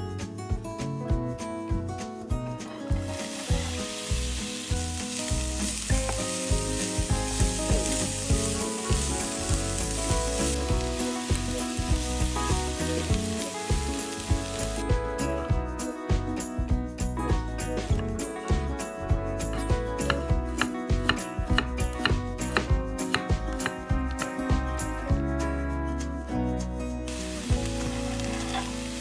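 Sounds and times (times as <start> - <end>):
background music: 0.0 - 29.0
onion sizzling in oil: 2.9 - 15.4, 27.1 - 29.0.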